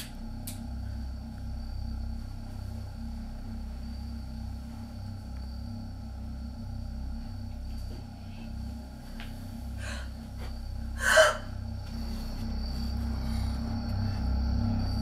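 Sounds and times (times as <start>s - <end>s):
low steady drone: 0.0s - 15.0s
faint breath: 9.7s - 14.3s.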